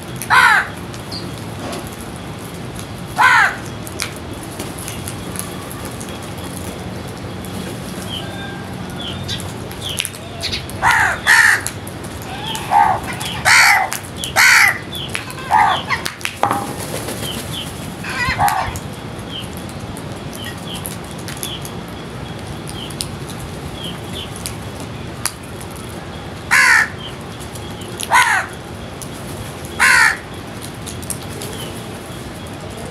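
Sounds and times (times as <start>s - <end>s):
crows cawing: 0.3s - 0.8s, 3.2s - 3.7s, 10.4s - 16.8s, 18.0s - 18.8s, 26.5s - 27.0s, 28.0s - 28.6s, 29.7s - 30.3s.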